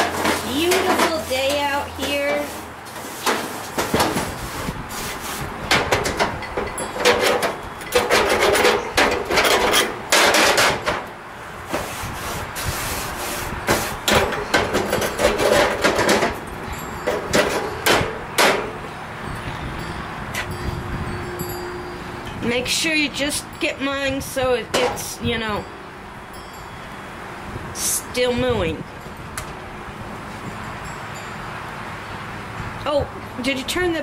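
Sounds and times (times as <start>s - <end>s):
grill brush scraping grates: 0.0s - 6.1s, 11.6s - 16.3s.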